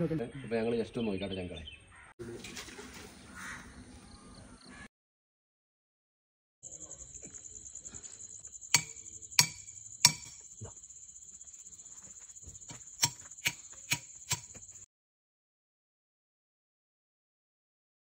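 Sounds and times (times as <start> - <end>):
crickets chirping: 6.6 - 14.9
metal rod being struck: 8.8 - 10.4, 13.0 - 14.6.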